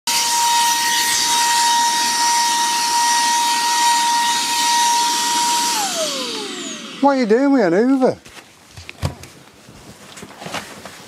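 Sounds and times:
handheld vacuum cleaner whine: 0.1 - 7.6.

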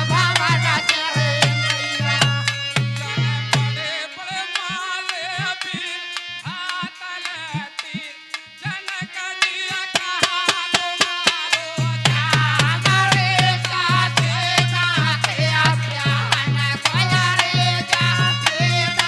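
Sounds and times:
dholak drum rhythm: 0.0 - 19.0
harmonium melody: 0.0 - 19.0.

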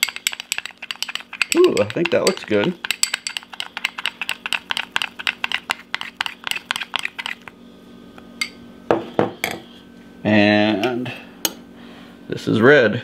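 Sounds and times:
spoon clinking against glass bowl: 0.0 - 4.8.

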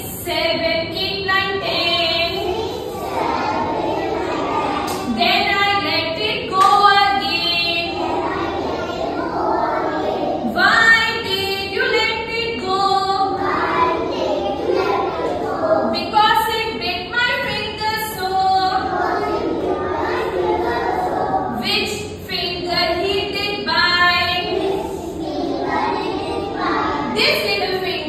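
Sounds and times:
woman singing along: 0.0 - 2.4, 5.1 - 7.9, 10.4 - 13.4, 15.8 - 18.8
children singing in chorus: 1.6 - 22.2, 22.8 - 28.0.

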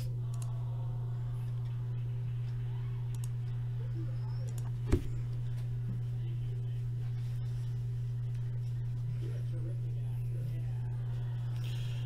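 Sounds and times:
steady low hum: 0.0 - 12.0
faint clicks: 0.3 - 0.5, 3.1 - 3.4.

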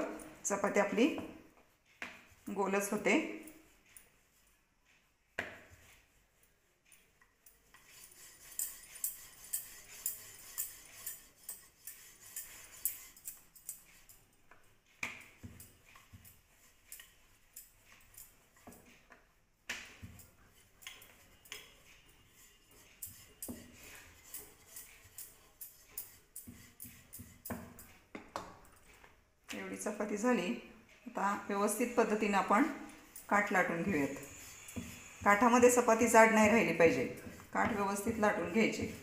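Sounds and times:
metal bangles clinking: 7.0 - 19.1, 19.8 - 29.1, 31.6 - 39.0
rolling pin on wooden board: 33.7 - 39.0.

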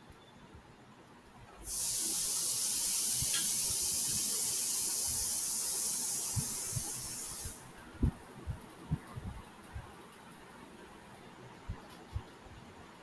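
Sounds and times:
high-pitched hiss: 1.6 - 7.8.

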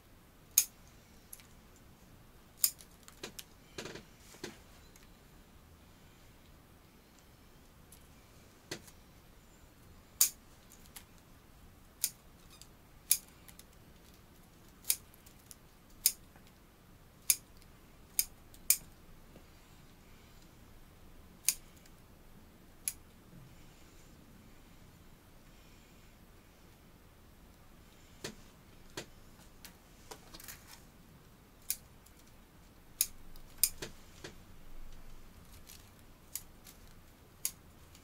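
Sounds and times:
scissors snipping twigs: 2.6 - 3.4.

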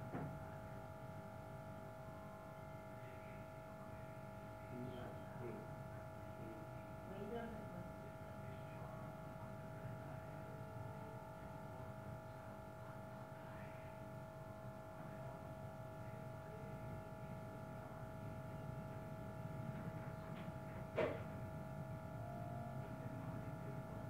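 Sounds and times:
low background hum: 0.0 - 24.0
electrical whine: 18.2 - 24.0.

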